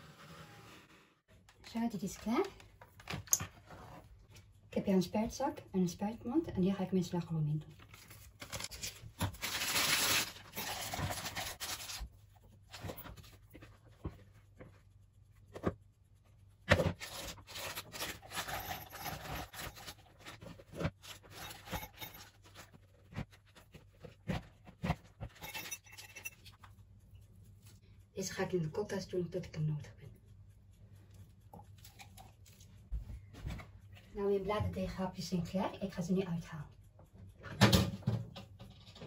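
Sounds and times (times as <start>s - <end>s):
plastic piping bag rustling: 7.8s - 12.1s.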